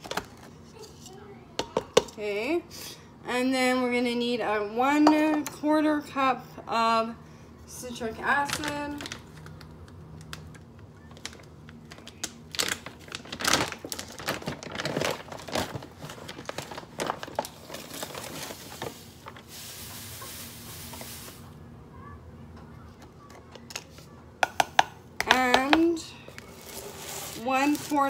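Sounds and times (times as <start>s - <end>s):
plastic bag crinkling: 8.4s - 9.6s, 11.1s - 21.5s, 26.3s - 28.0s
steady hiss: 18.8s - 21.6s.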